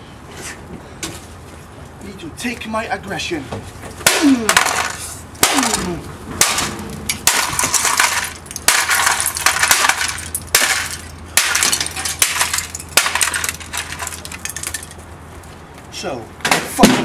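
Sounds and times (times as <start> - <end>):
plastic breaking and clattering: 4.1 - 15.0.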